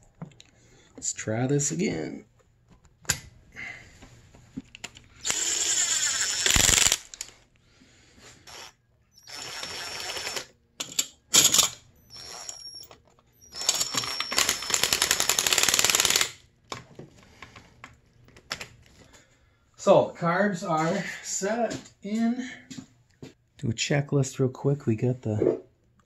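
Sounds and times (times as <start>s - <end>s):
power tool motor whine: 8.5s - 10.5s, 11.4s - 15.1s.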